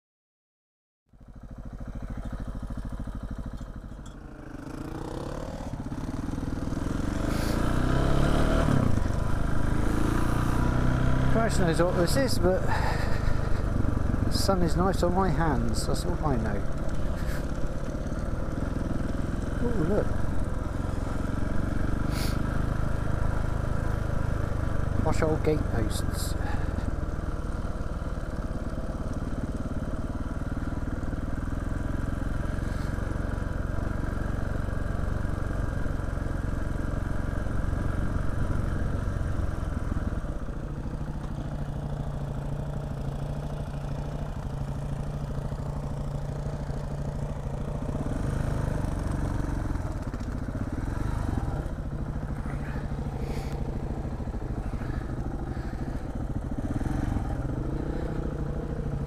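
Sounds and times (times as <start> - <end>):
motorcycle engine running: 1.1 - 59.0.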